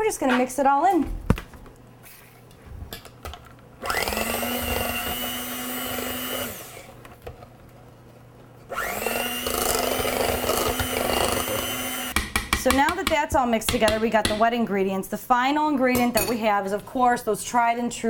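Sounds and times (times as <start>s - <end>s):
electric blender whine: 3.8s - 7.0s, 8.7s - 12.2s.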